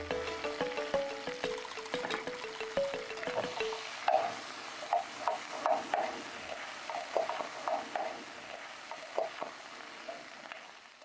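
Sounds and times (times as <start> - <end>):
light sizzle in oil: 2.4 - 11.0.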